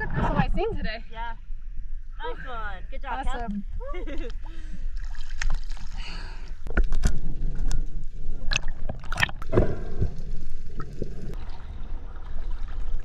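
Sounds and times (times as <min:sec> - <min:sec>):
water splashing and gurgling: 0:04.5 - 0:13.0
underwater churning rumble: 0:06.7 - 0:13.0.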